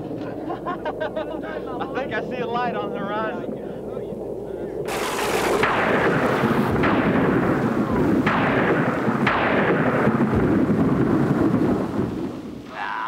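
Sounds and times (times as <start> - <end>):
rain rushing: 0.0 - 13.0
thunder cracks: 0.0 - 13.0.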